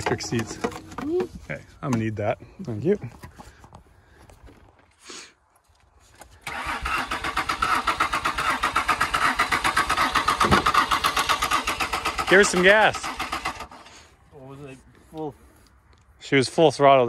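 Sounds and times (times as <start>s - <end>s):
starter motor cranking engine: 6.4s - 14.1s.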